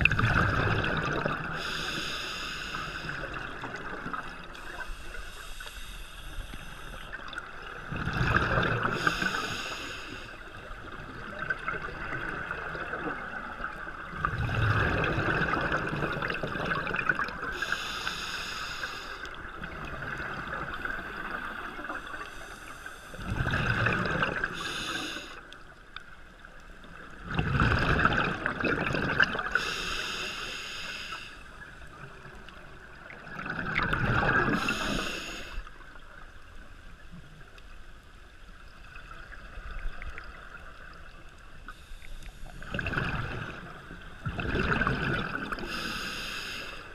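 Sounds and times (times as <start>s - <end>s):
exhaled bubbles gurgling: 0.0s - 2.1s, 2.8s - 17.9s, 19.2s - 25.7s, 26.8s - 30.1s, 31.5s - 36.7s, 42.2s - 46.1s
faint steady hum: 0.0s - 46.9s
hissing regulator inhalation: 1.6s - 3.3s, 4.6s - 7.1s, 9.0s - 10.4s, 17.6s - 19.3s, 24.5s - 25.4s, 29.6s - 31.5s, 34.5s - 35.6s, 45.6s - 46.9s.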